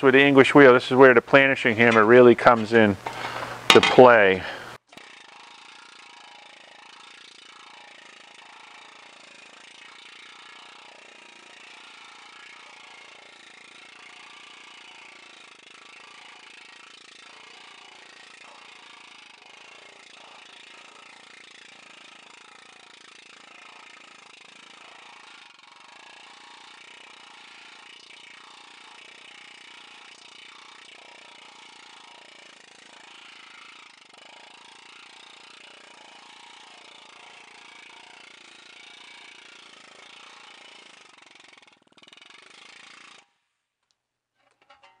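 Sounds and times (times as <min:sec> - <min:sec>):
planishing hammer on sheet metal: 0:01.9 - 0:04.6, 0:44.4 - 0:45.0.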